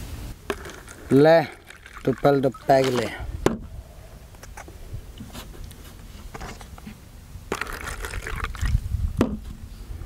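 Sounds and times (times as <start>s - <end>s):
cups and bottles clicking: 0.5s - 3.1s, 7.5s - 8.7s
drink pouring into plastic cup: 0.5s - 3.2s, 7.5s - 8.8s.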